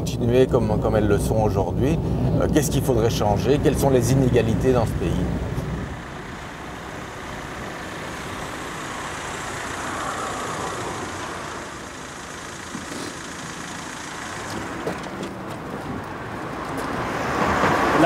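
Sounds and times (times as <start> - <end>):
car driving by: 4.2 - 18.0.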